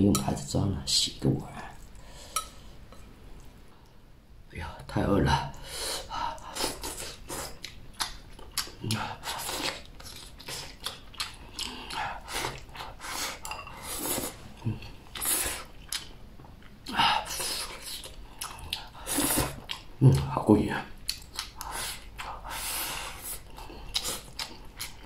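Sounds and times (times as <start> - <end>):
chewing: 6.4 - 20.3, 21.0 - 22.5, 23.2 - 25.0.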